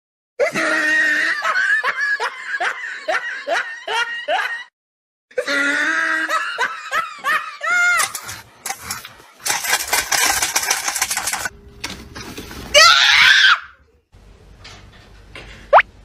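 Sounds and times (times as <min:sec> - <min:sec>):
high-pitched laughter: 0:00.4 - 0:04.7, 0:05.3 - 0:08.4.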